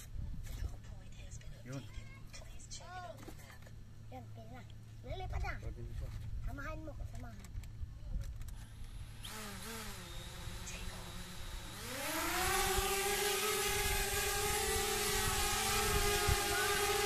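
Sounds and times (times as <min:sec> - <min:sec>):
drone propellers whirring: 0:08.5 - 0:17.0.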